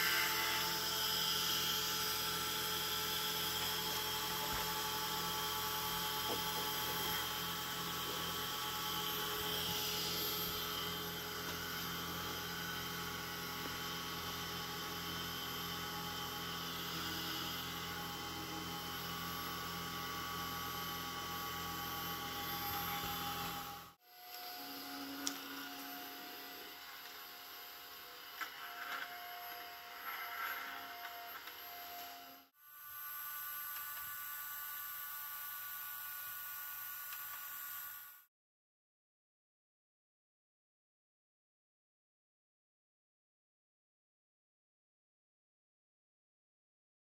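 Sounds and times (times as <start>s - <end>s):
electric gyro whining: 0.0s - 34.1s.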